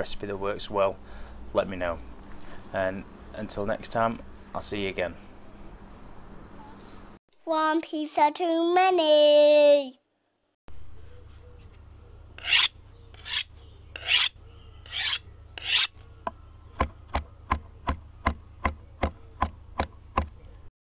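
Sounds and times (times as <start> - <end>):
short rasping strokes: 12.4 - 16.0.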